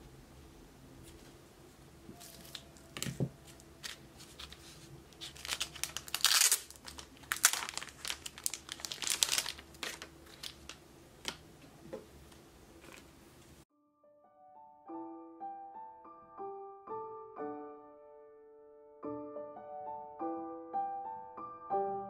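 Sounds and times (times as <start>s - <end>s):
packaging crinkling and tearing: 2.2s - 11.4s.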